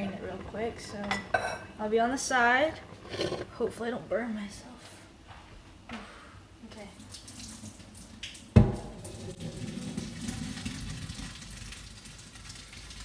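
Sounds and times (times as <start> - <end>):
water splashing into sink: 7.0 - 13.0.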